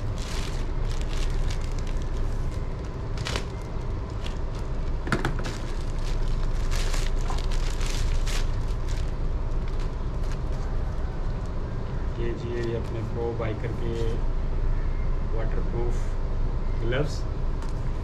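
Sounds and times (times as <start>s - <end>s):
plastic bag crinkling and tearing: 0.0s - 11.5s
steady low rumble: 0.0s - 18.0s.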